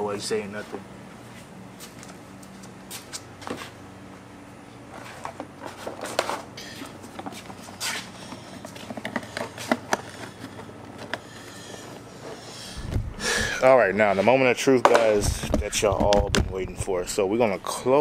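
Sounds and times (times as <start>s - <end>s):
low steady hum: 0.0s - 18.0s
footsteps on concrete: 1.1s - 3.8s, 5.0s - 16.3s.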